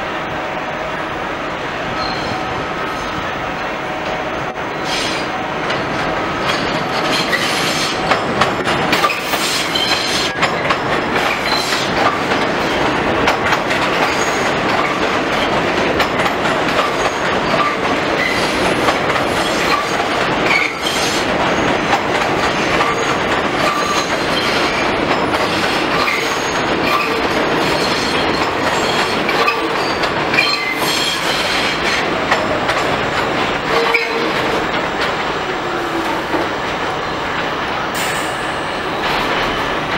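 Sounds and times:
train wheels rumbling: 0.0 - 39.9
wheel squeals: 2.0 - 2.4
clickety-clack over rail joints: 4.8 - 39.9.

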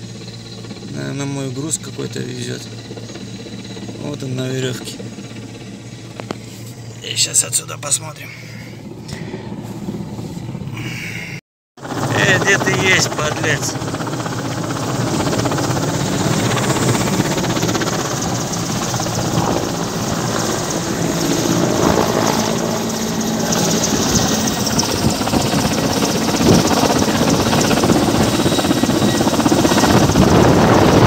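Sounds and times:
helicopter rotor and turbine engines: 0.0 - 31.0.

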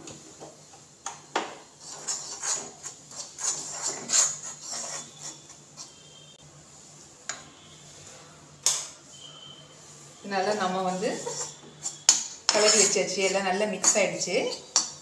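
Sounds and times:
metal spoon scraping a pan: 1.8 - 6.3, 10.4 - 15.0.

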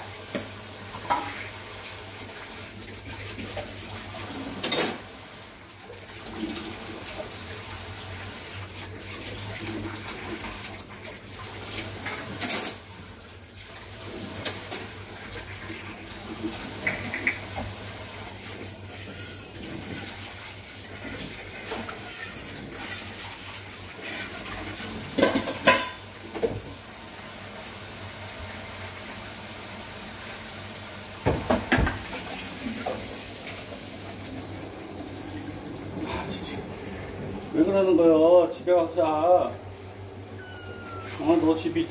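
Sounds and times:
tap water running into sink: 0.0 - 26.9, 28.3 - 40.3
dishes and cutlery clinking: 4.6 - 5.0, 25.2 - 26.1.

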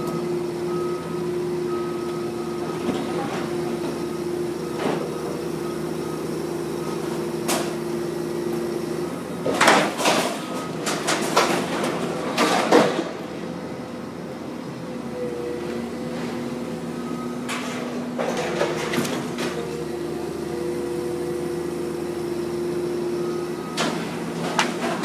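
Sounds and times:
excavator engine hum: 0.0 - 25.0
crashes and clatter of debris: 9.6 - 13.2.

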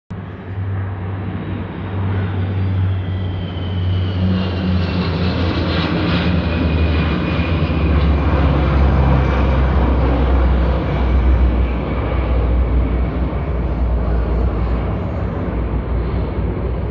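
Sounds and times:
aircraft engine drone: 0.1 - 16.9.

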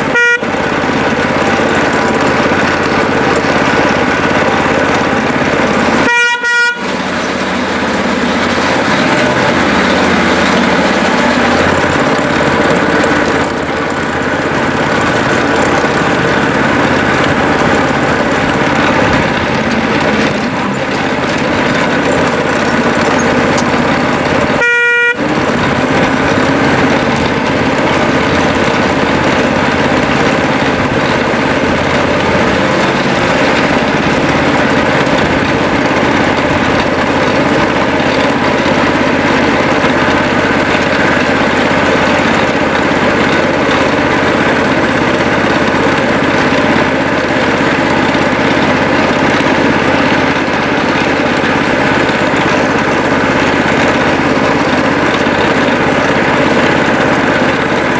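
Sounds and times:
short pitched tone: 0.0 - 0.7, 5.7 - 18.1, 24.5 - 25.3
small locomotive engine running: 0.0 - 57.9.

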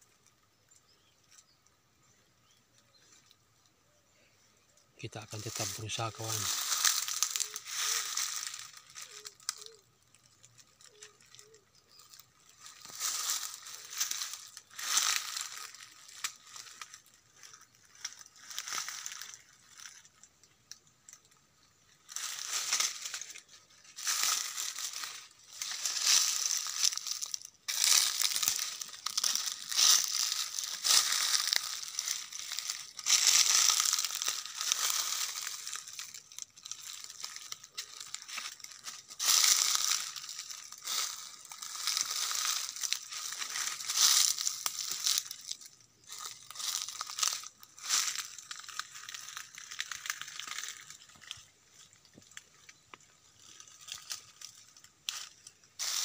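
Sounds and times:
footsteps crunching dry leaves: 5.0 - 56.0.

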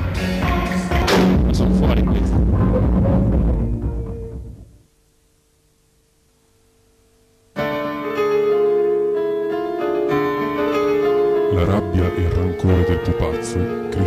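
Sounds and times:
keyboard chords: 7.3 - 14.0.

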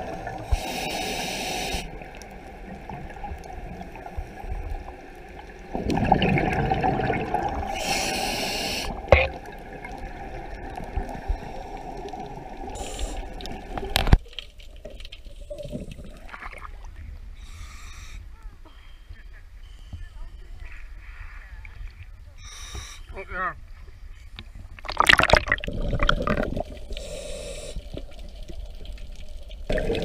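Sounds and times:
water gurgling and bubbling: 1.8 - 14.2, 24.8 - 27.1, 29.6 - 30.0.

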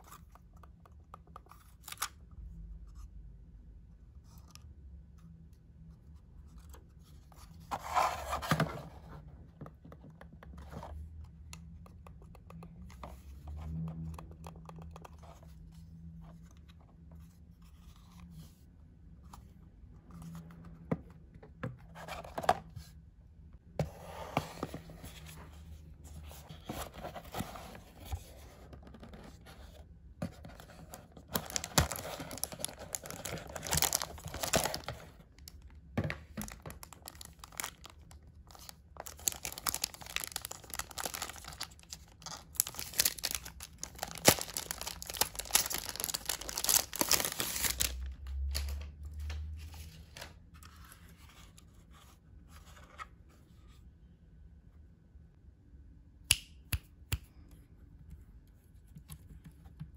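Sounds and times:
packaging rustling and tearing: 30.4 - 35.6, 36.4 - 48.8.

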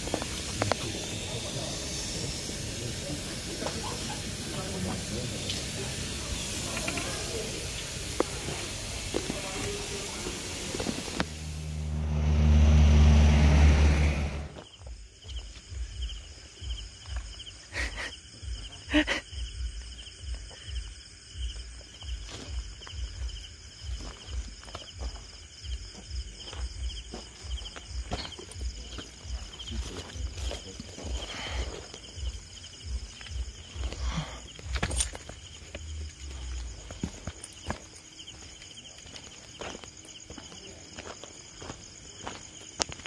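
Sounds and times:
night insects chirping: 0.0 - 43.0
loud low hum: 8.8 - 14.6.

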